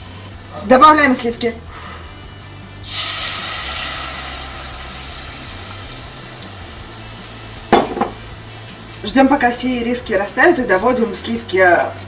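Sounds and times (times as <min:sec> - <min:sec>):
cream sizzling in hot pan: 0:02.8 - 0:08.6.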